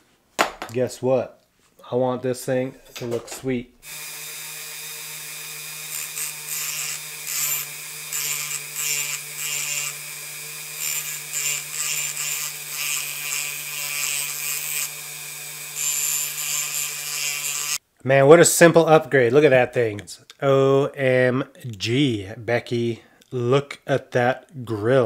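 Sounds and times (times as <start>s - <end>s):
cut-off wheel grinding metal: 3.8s - 17.8s
rotary tool humming: 3.8s - 17.8s.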